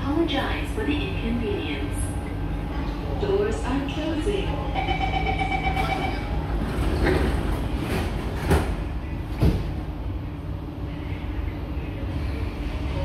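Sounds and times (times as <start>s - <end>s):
low hum of train: 0.0s - 13.0s
train door warning tone: 4.7s - 6.4s.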